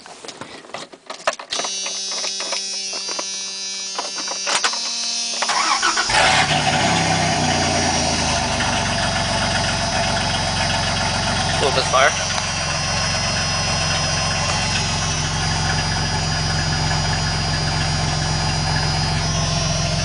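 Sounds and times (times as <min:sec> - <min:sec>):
starter cranking engine: 0:05.4 - 0:20.0
engine idling loudly: 0:05.5 - 0:20.0.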